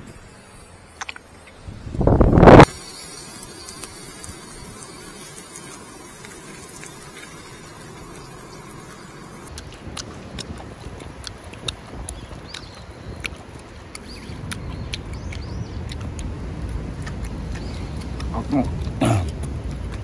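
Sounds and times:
meat sizzling on grill: 0.0 - 9.5.

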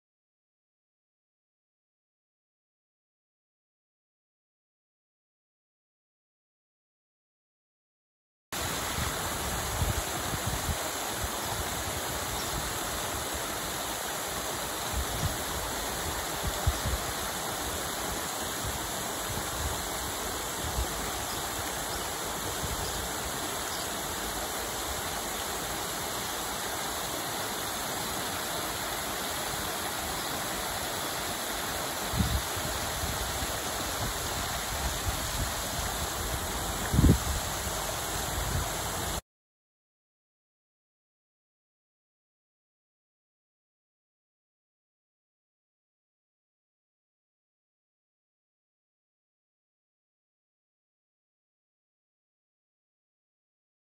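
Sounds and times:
waterfall splashing over rocks: 8.6 - 39.2.

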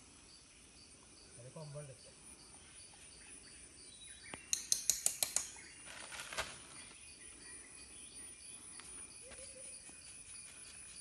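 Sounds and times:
insects chirping: 0.0 - 11.0
sharp clicks: 4.3 - 5.6
short rustle: 5.8 - 6.9.

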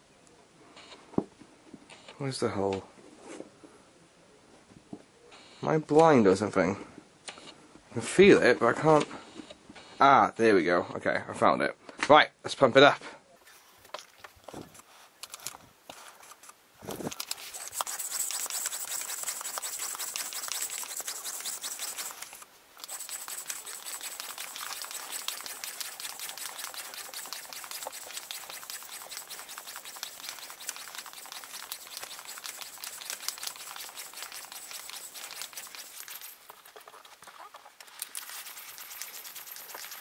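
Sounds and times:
hand pump hissing air: 15.9 - 36.8, 37.8 - 40.0.

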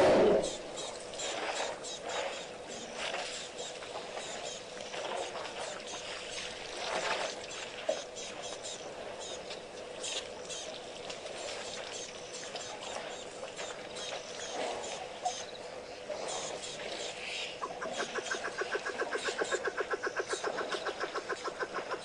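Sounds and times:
faint steady hum: 0.0 - 22.0
water splashing and trickling: 0.4 - 22.0.

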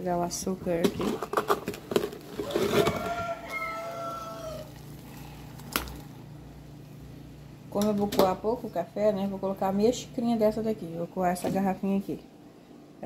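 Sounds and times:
rooster crowing: 2.4 - 4.8.

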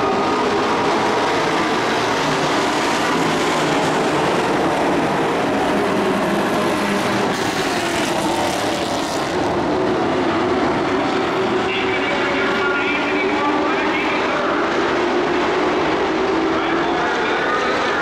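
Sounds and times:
race truck engines at speed: 0.0 - 18.0.

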